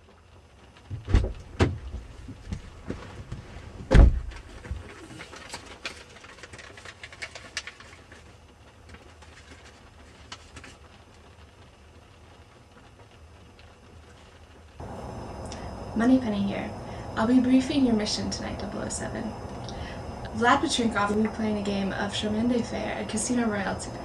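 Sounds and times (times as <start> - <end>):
sharp knocks and thumps: 0.9 - 4.8.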